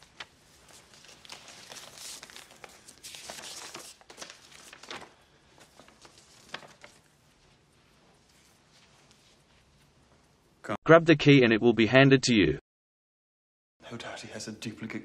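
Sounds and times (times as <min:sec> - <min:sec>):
paper rustling and crinkling: 0:00.0 - 0:09.7.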